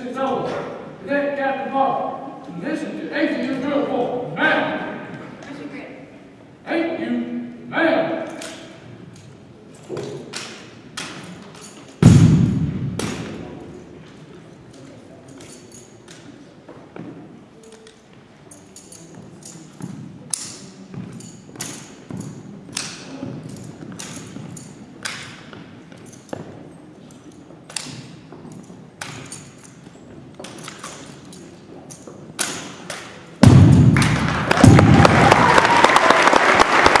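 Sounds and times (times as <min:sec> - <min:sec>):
loud heavy thud ringing: 0:12.0 - 0:13.3
crowd cheering and applauding: 0:34.0 - 0:37.0.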